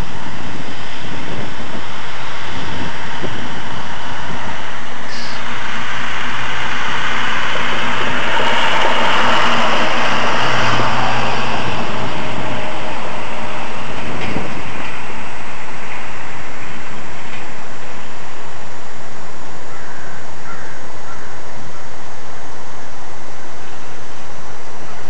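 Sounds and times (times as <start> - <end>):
rushing of passing vehicle: 0.0 - 19.2
low engine hum: 0.0 - 25.0.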